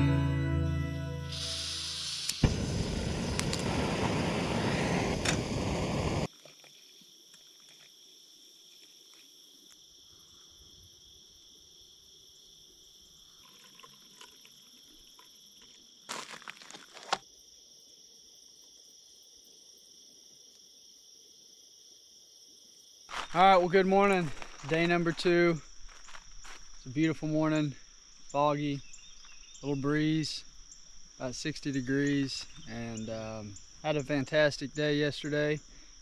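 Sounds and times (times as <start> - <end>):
background music: 0.0 - 1.9
faint insect chorus: 1.4 - 36.0
crackling rustle: 13.4 - 17.2, 23.1 - 26.9.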